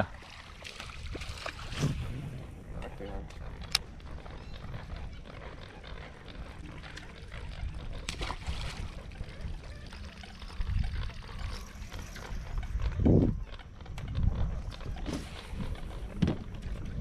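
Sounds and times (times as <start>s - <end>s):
water splashing and trickling: 0.0s - 3.0s, 6.4s - 12.7s
wind rumble on microphone: 0.9s - 17.0s.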